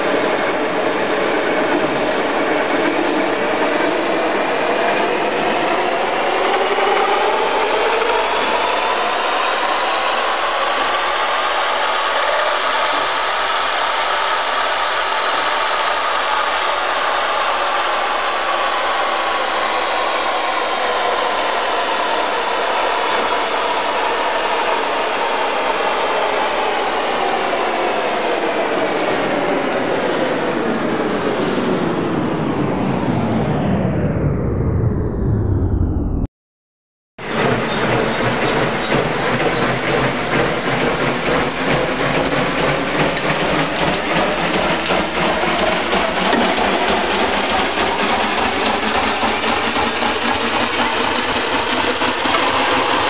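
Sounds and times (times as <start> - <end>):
metal lathe whining: 37.3 - 53.0.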